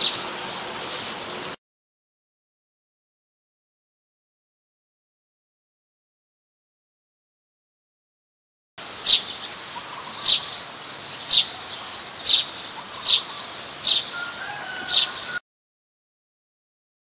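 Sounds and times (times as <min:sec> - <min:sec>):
sparrow chirping: 0:00.0 - 0:01.4, 0:08.8 - 0:15.4.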